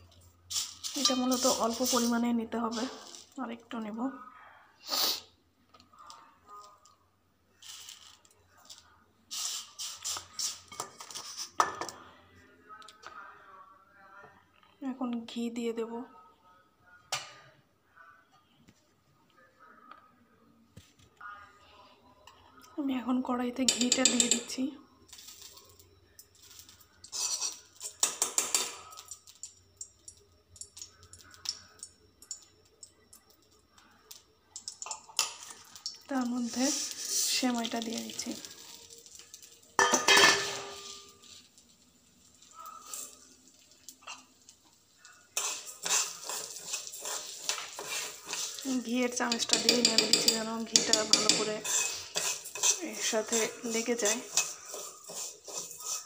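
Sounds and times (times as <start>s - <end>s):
metal spoon scraping a wok: 0.5s - 3.3s, 9.3s - 11.6s, 26.4s - 28.7s, 45.3s - 56.0s.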